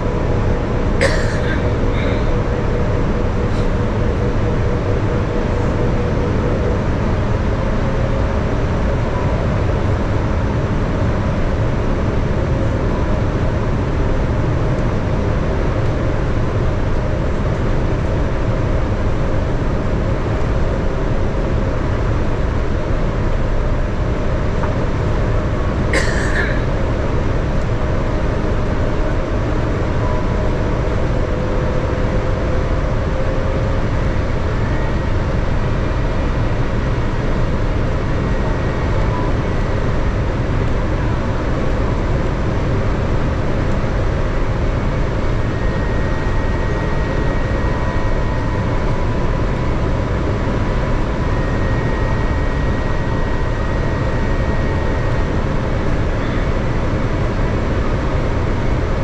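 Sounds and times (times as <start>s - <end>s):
jet engines humming: 0.0s - 59.0s.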